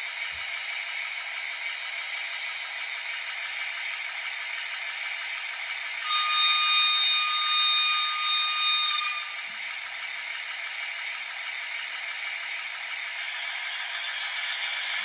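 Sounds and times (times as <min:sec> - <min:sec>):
model railcar rattling on track: 0:00.0 - 0:15.0
high whistle-like tone: 0:06.0 - 0:09.5.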